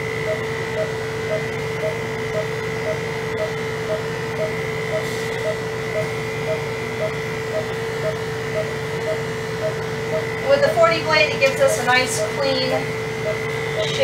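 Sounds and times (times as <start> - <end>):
electric clippers humming: 0.0 - 14.0
short electronic beeps: 0.2 - 10.4, 13.2 - 14.0.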